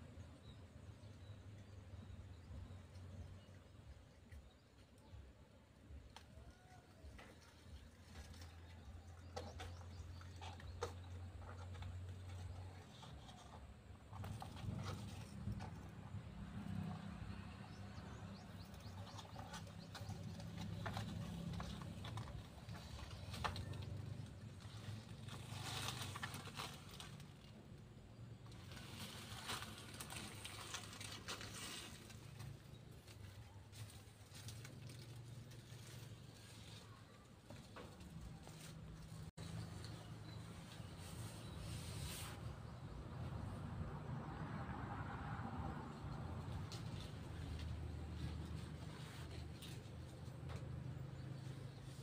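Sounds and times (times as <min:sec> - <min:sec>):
lizard claws rustling dry leaves: 0:18.2 - 0:27.6, 0:28.5 - 0:36.9
footsteps on dry leaves and cardboard: 0:18.6 - 0:27.4.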